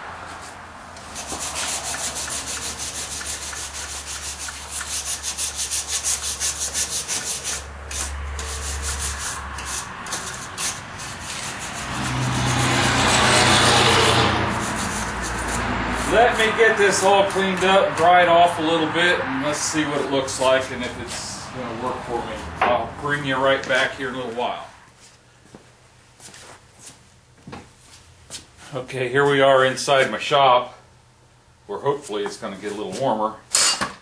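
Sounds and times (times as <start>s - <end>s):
steady rushing noise with low hum: 0.0s - 24.9s
hand scrubbing metal vise: 0.4s - 18.1s.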